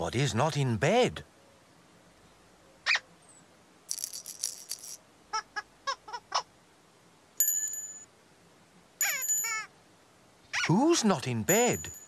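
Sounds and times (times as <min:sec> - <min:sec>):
shaker rattle: 0:03.9 - 0:05.0
bright chime ring: 0:07.4 - 0:08.1, 0:09.0 - 0:09.7.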